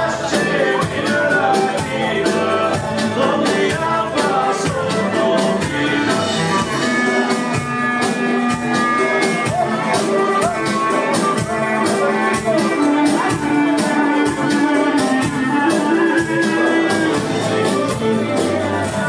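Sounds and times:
live folk dance music: 0:00.0 - 0:19.0.

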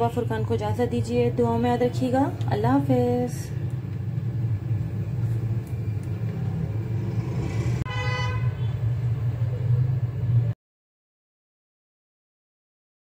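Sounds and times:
steady low rumble: 0:00.5 - 0:07.9.

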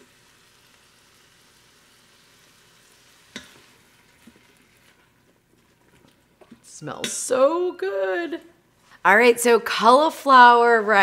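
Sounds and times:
vegetables sizzling in pot: 0:00.0 - 0:08.4
spatula stirring: 0:02.6 - 0:07.4.

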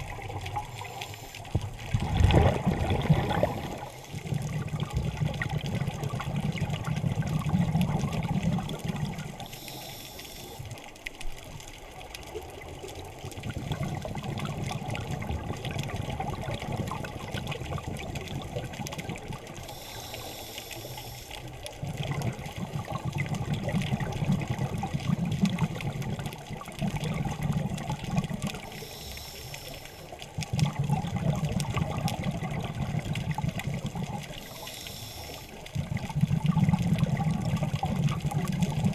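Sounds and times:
hissing regulator inhalation: 0:00.6 - 0:01.6, 0:09.4 - 0:10.6, 0:19.6 - 0:21.5, 0:28.6 - 0:30.1, 0:34.3 - 0:35.6
bubbling exhalations underwater: 0:01.5 - 0:09.4, 0:13.3 - 0:19.6, 0:21.8 - 0:28.7, 0:30.3 - 0:34.6, 0:35.6 - 0:38.9.

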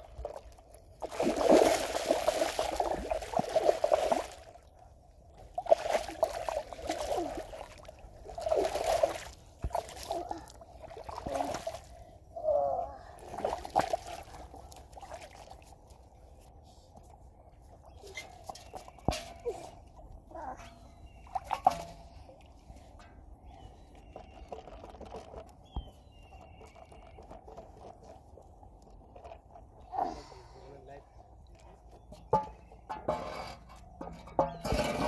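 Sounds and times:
fish thrashing and splashing in water: 0:01.0 - 0:04.6, 0:05.6 - 0:11.9, 0:13.2 - 0:15.6.

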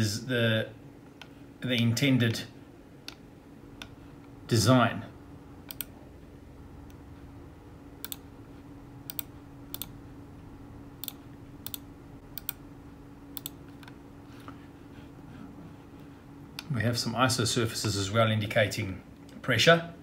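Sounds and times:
steady low hum: 0:00.0 - 0:20.0
computer mouse clicks: 0:05.6 - 0:06.0, 0:08.0 - 0:08.3, 0:09.0 - 0:10.0, 0:11.0 - 0:12.6, 0:13.4 - 0:14.0.

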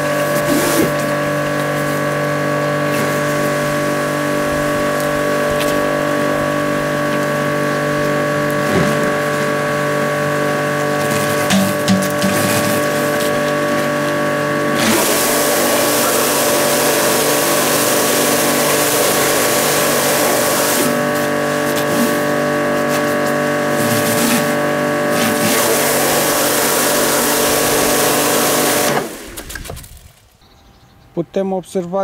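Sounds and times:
pressure washer motor hum: 0:00.0 - 0:30.2
water spray hissing on concrete: 0:14.8 - 0:22.1.

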